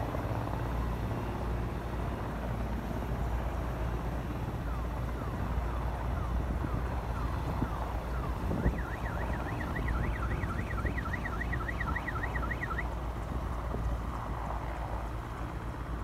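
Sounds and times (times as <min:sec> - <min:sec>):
helicopter rumbling: 0:00.0 - 0:16.0
warbling siren: 0:03.4 - 0:13.0.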